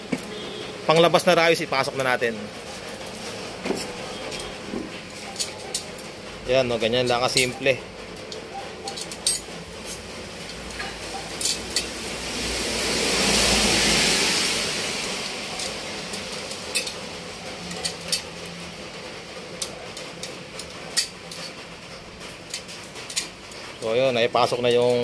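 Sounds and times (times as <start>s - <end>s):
metal spokes clinking on wheel hub: 0.1s - 12.0s, 14.6s - 25.0s
broad rushing noise: 8.8s - 20.9s.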